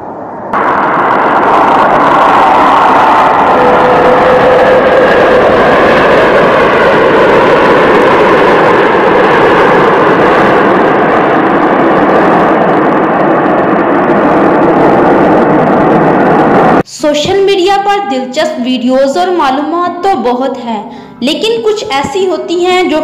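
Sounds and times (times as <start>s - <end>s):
jet engines roaring at takeoff: 0.0s - 16.9s, 20.4s - 23.0s
thin jet engine whine: 0.0s - 23.0s.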